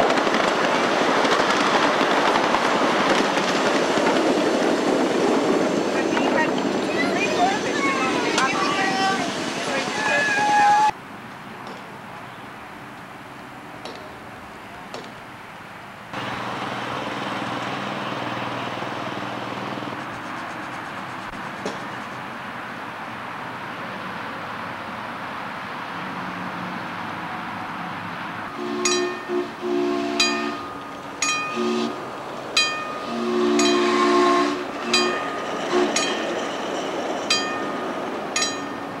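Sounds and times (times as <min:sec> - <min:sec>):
miniature train rumbling: 0:00.0 - 0:11.0, 0:16.2 - 0:22.2, 0:28.6 - 0:39.0
steam whistle chord blasts: 0:28.6 - 0:30.8, 0:31.4 - 0:32.0, 0:33.0 - 0:36.0
bell ringing: 0:30.2 - 0:31.6, 0:32.6 - 0:33.8, 0:37.3 - 0:39.0.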